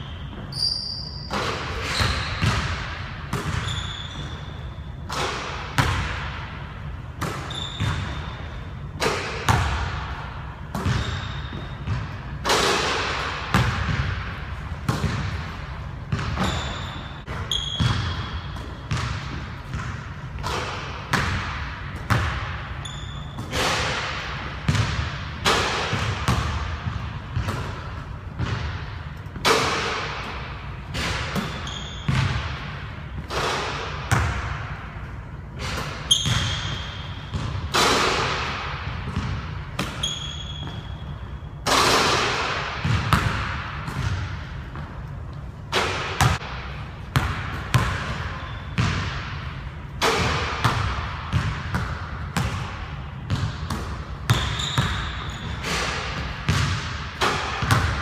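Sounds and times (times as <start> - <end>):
sneaker squeaks: 0.0 - 5.9, 7.2 - 9.7, 10.7 - 14.0, 15.0 - 21.3, 22.0 - 24.0, 25.9 - 34.3, 35.6 - 38.4, 39.1 - 41.8, 47.2 - 49.2, 53.2 - 56.9
basketball bouncing on wooden floor: 1.3 - 4.4, 10.7 - 12.2, 13.4 - 34.8, 35.6 - 41.1, 42.5 - 45.1, 45.8 - 58.0.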